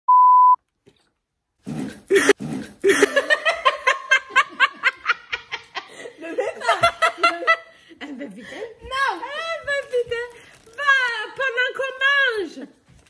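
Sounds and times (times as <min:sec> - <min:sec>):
test-card tone beep: 0:00.1 - 0:00.6
women laughing loudly: 0:02.8 - 0:07.7.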